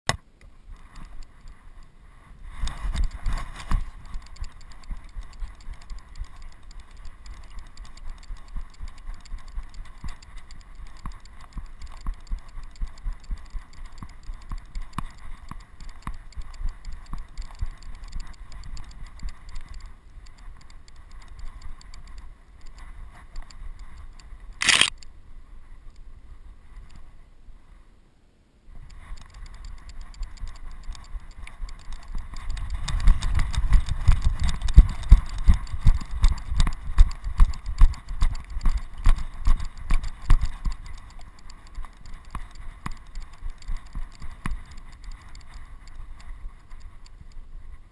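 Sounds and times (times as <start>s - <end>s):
camera rig rattling and jingling: 2.6s - 22.8s, 24.6s - 24.9s, 29.0s - 46.8s.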